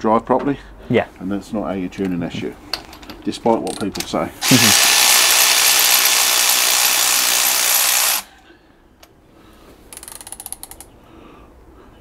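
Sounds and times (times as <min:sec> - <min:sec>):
loud steady hiss: 0:04.4 - 0:08.3
socket ratchet clicking: 0:09.9 - 0:10.9.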